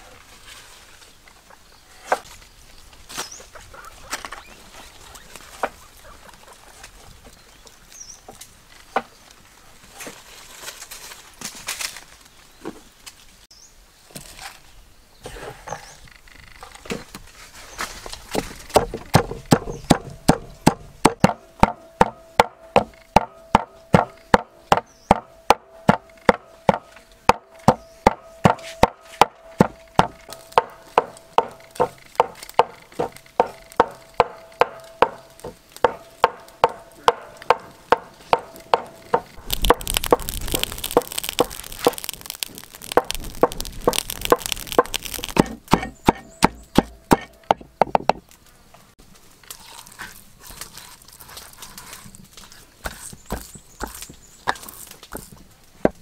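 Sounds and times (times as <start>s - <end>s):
broad rustling noise: 0.0s - 14.8s, 16.4s - 18.7s
knife chopping on wooden board: 45.2s - 48.2s, 52.8s - 55.3s.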